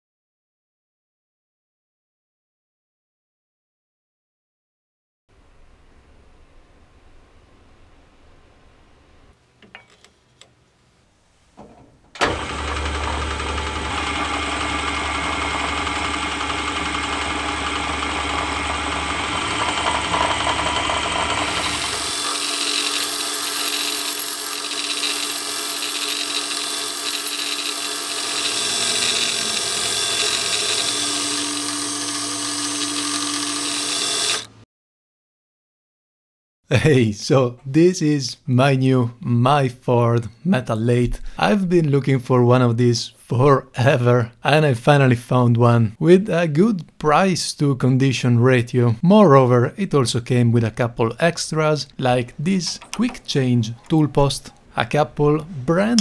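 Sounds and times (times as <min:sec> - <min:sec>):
lathe motor humming: 0:12.2 - 0:34.6
lathe cutting metal hissing: 0:17.0 - 0:34.4.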